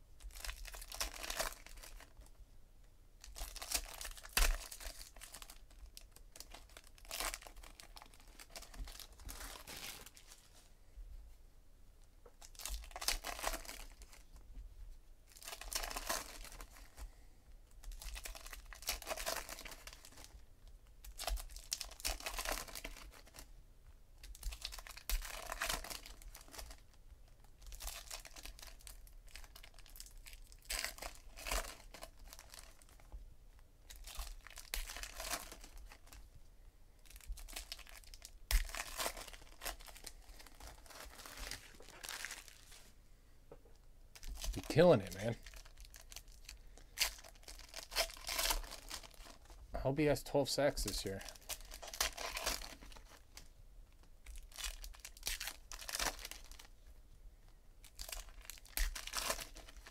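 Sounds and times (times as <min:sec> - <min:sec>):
foil wrappers tearing and crinkling: 0:00.3 - 0:02.1, 0:03.2 - 0:10.4, 0:12.4 - 0:14.2, 0:15.3 - 0:17.0, 0:17.9 - 0:20.3, 0:21.0 - 0:23.4, 0:24.3 - 0:26.9, 0:27.6 - 0:33.0, 0:33.9 - 0:36.2, 0:37.0 - 0:42.8, 0:44.2 - 0:49.5, 0:50.9 - 0:53.2, 0:54.2 - 0:56.7, 0:57.8 - 0:59.9.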